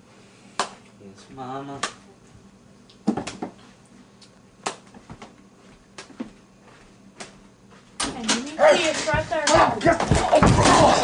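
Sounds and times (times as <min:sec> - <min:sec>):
light knocks and thumps: 0:09.1 - 0:10.9.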